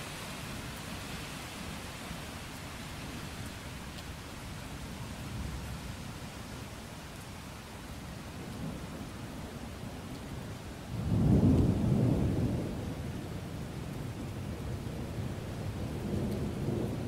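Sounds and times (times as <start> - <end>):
steady rain: 0.0 - 17.0
thunder rumbling: 11.0 - 17.0.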